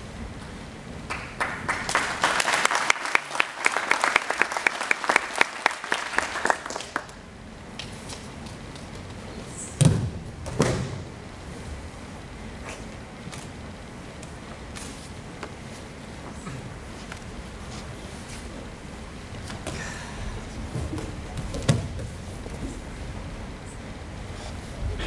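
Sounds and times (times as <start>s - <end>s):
spectators clapping: 1.0s - 9.0s.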